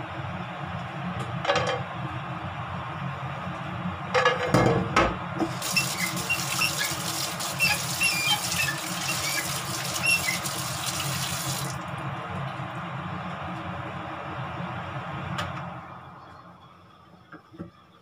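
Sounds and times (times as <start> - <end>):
tap running into sink: 5.4 - 11.8.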